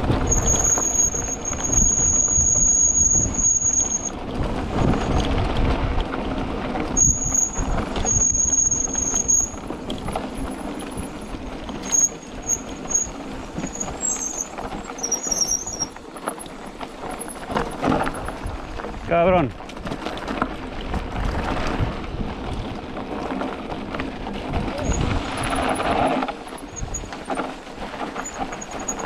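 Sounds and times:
wind buffeting the microphone: 0:00.0 - 0:11.6, 0:17.5 - 0:29.0
tyres rumbling over rough dirt: 0:00.0 - 0:29.0
bike brakes squealing: 0:00.1 - 0:05.2, 0:06.9 - 0:18.2, 0:24.7 - 0:29.0.

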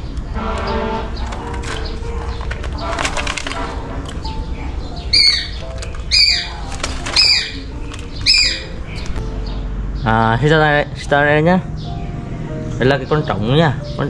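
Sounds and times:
background music: 0:00.0 - 0:14.0
shrill falling bird calls: 0:04.6 - 0:09.2.

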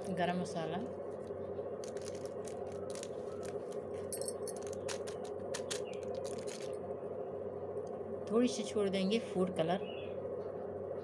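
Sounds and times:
steady low hum: 0:00.0 - 0:11.0
small metallic clinks: 0:04.0 - 0:06.8.

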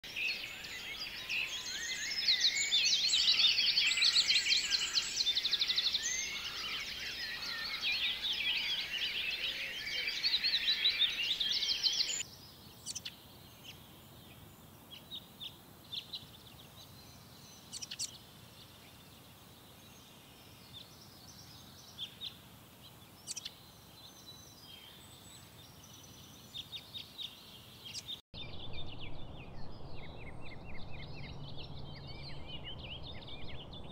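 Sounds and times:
birds chirping and trilling: 0:00.0 - 0:33.9
repeated bird calls: 0:00.1 - 0:13.8.

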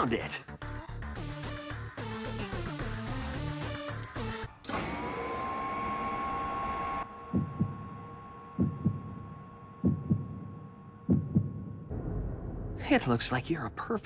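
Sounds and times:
heartbeat thumps: 0:07.3 - 0:08.0, 0:08.6 - 0:12.0.

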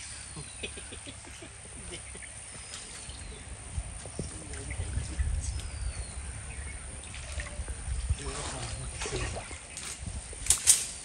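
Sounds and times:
water sloshing: 0:06.7 - 0:11.0.

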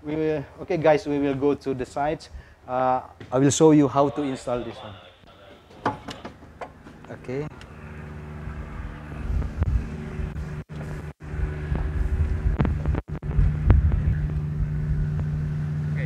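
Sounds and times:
ship engine hum: 0:04.7 - 0:16.0
low rumble: 0:07.7 - 0:16.0
wind on microphone: 0:08.5 - 0:15.6.

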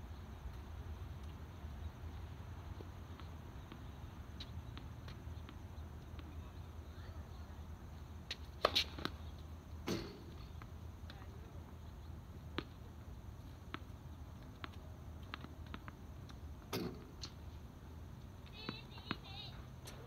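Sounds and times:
tennis ball knocks: 0:09.8 - 0:10.6.

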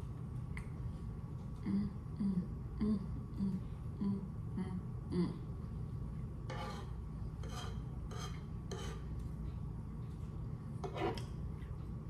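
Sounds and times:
low hum: 0:00.0 - 0:12.0
scratchy scraping noises: 0:06.5 - 0:09.1, 0:10.8 - 0:11.2.

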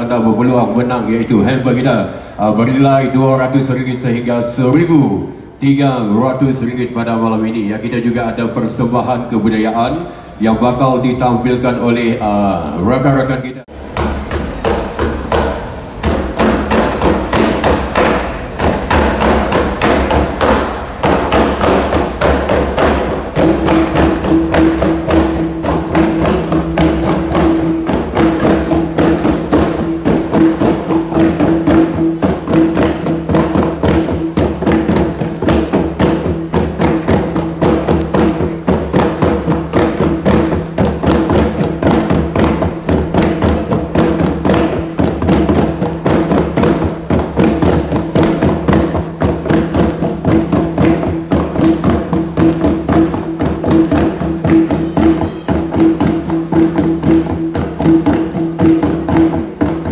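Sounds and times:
hand drums in fast rhythm: 0:13.7 - 0:59.9.

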